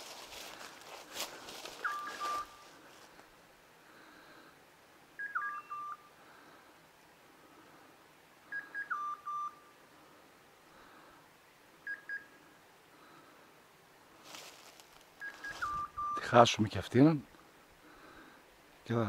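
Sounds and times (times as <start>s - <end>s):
electronic collar beeper: 5.2s - 6.0s.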